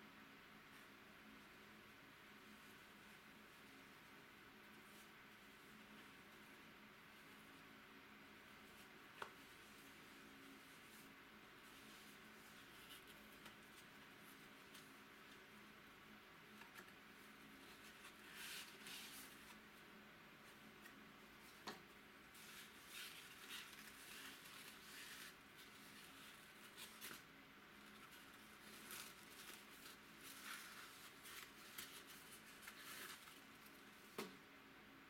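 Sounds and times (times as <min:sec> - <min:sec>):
cardboard and paper rustling: 0:16.5 - 0:19.6, 0:20.4 - 0:34.3.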